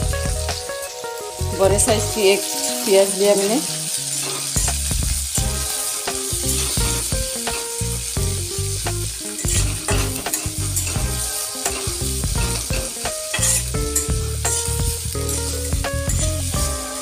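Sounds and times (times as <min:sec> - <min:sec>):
instrumental background music: 0:00.0 - 0:17.0
onions sizzling in oil: 0:00.0 - 0:17.0
metal spatula scraping pan: 0:09.3 - 0:14.7.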